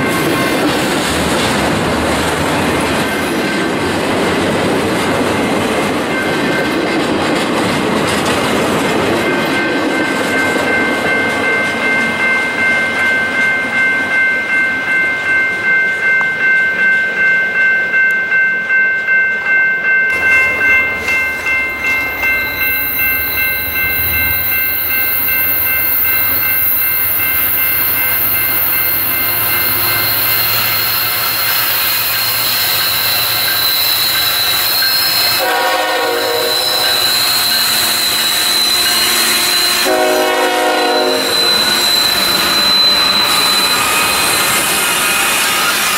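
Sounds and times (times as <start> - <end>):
diesel locomotive rumbling: 0.0 - 12.3, 20.1 - 45.9
train wheels squealing: 20.5 - 45.9.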